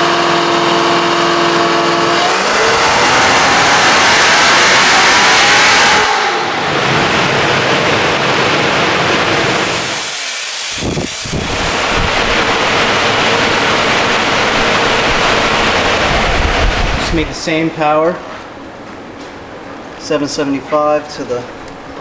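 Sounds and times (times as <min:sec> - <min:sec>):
car engine note: 0:00.0 - 0:10.1
dyno rollers spinning down: 0:00.0 - 0:17.8.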